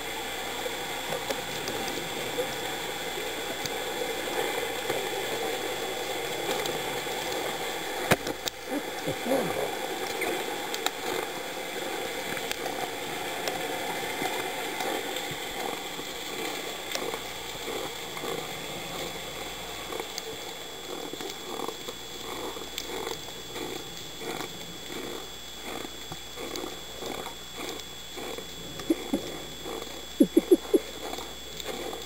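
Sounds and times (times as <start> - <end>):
muffled underwater rushing: 0.0 - 32.0
soft fluttering pulse: 15.6 - 32.0.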